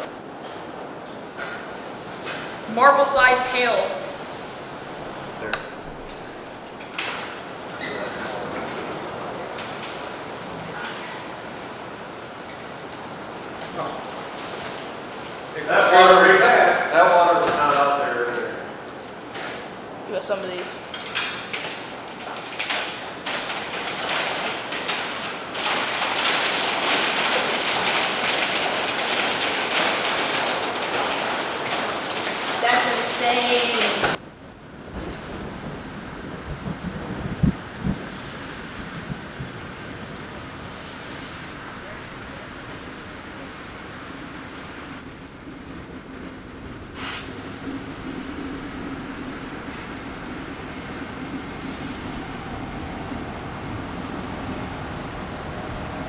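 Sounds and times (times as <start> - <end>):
steady rain: 0.0 - 56.0
hail pattering on glass doors: 0.4 - 56.0
diesel locomotive engine hum: 37.3 - 56.0
short hiss: 47.0 - 47.4.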